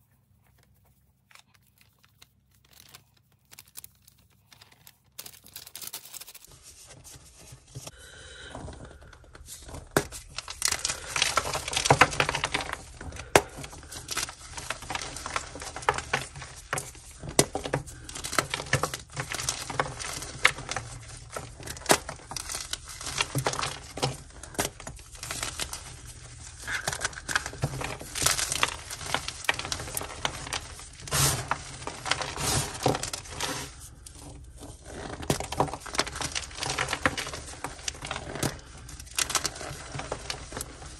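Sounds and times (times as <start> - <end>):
chalk crunching by hand: 31.0 - 34.0.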